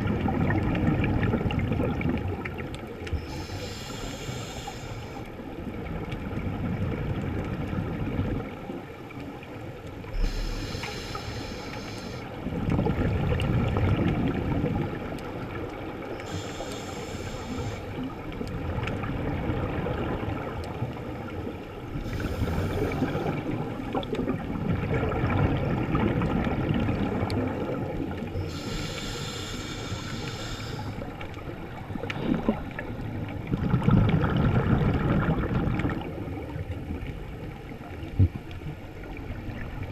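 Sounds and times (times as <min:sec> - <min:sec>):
gurgling exhaled bubbles: 0:00.0 - 0:08.7, 0:10.0 - 0:37.2
regulator hiss: 0:03.2 - 0:05.2, 0:10.2 - 0:12.3, 0:16.2 - 0:18.0, 0:28.4 - 0:31.0.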